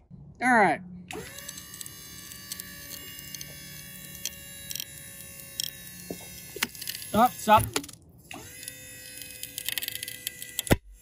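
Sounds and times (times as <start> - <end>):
pump whine and hum: 0.9 - 11.0.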